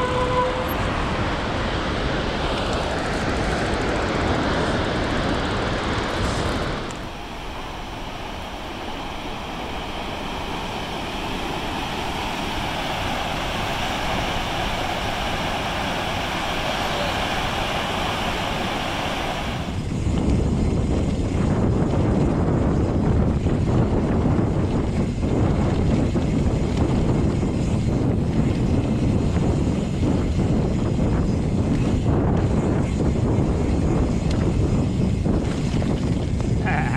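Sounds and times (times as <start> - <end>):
wind rumble on microphone: 0.0 - 36.9
bike rattling over trail: 2.4 - 7.2, 19.7 - 36.9
water rushing over dam spillway: 7.1 - 19.8.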